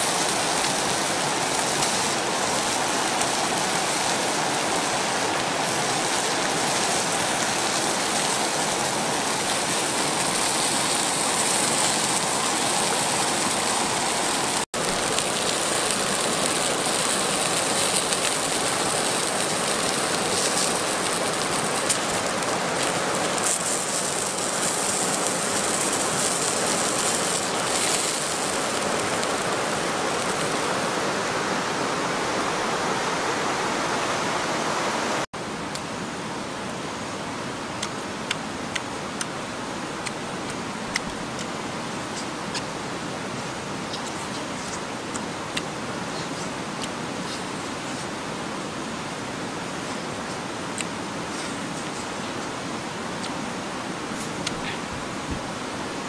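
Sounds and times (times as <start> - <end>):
river water rushing: 0.0 - 56.0.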